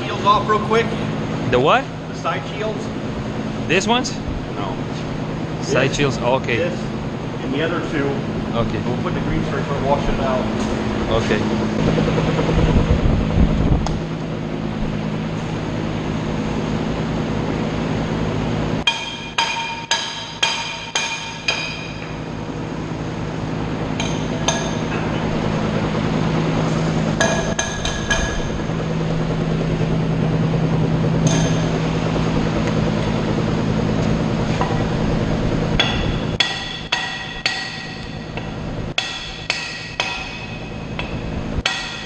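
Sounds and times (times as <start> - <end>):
steady low hum: 0.0 - 42.0
hammer striking steel: 18.8 - 22.2, 24.0 - 25.0, 27.2 - 28.6, 31.2 - 31.8, 35.8 - 42.0.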